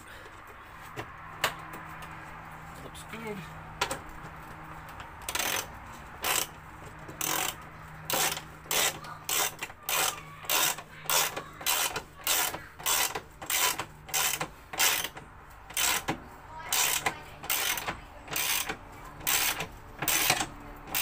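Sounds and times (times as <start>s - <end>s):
hand ratchet clicking: 4.9s - 21.0s.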